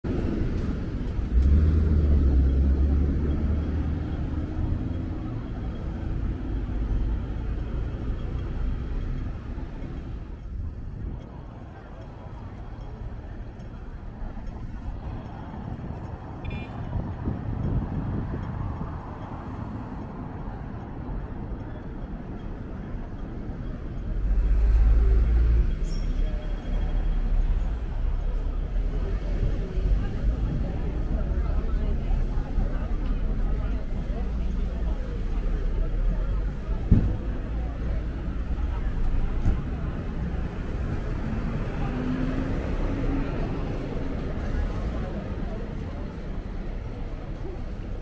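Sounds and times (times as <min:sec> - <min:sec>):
city road traffic: 0:00.0 - 0:48.0
vehicle engine rumbling close by: 0:00.0 - 0:48.0.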